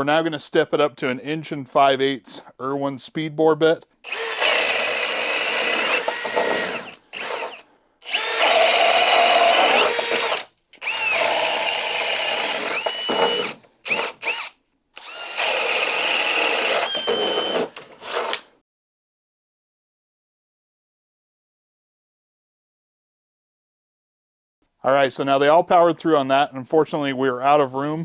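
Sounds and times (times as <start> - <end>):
cordless drill motor whining: 4.0 - 18.4
drill bit chewing through wood: 4.0 - 18.5.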